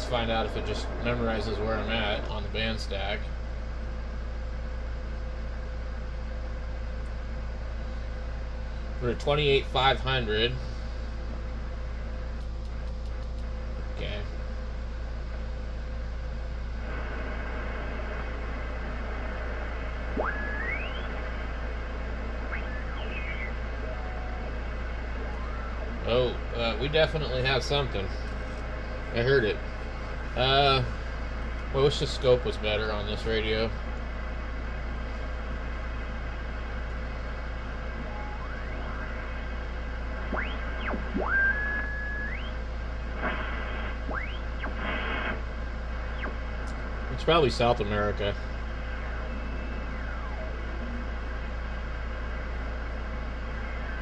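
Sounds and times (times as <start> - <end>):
radio band noise hiss: 0.0 - 3.5, 8.8 - 11.3, 13.8 - 14.4, 16.5 - 54.0
low hum: 0.0 - 54.0
rising radio whistles: 20.0 - 27.0, 37.8 - 46.6, 48.5 - 51.4, 53.3 - 54.0.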